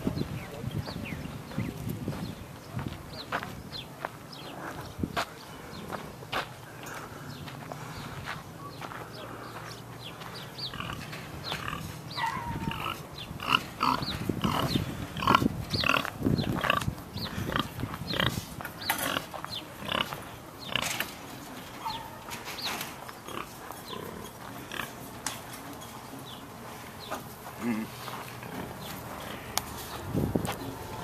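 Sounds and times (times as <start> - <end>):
pigs grunting and squealing: 11.6 - 16.0.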